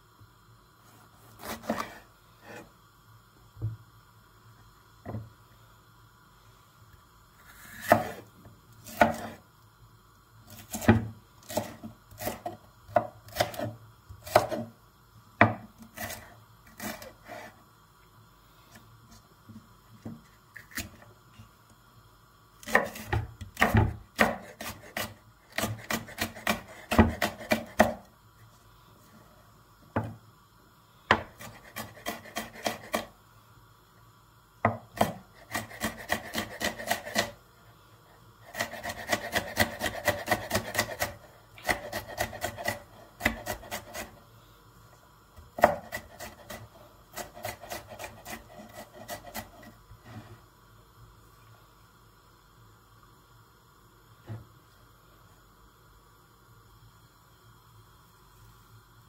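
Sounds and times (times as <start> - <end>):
knife chopping on wooden board: 7.8 - 8.2, 8.9 - 9.4, 10.7 - 14.6, 22.7 - 28.0, 34.6 - 37.3, 45.6 - 49.5.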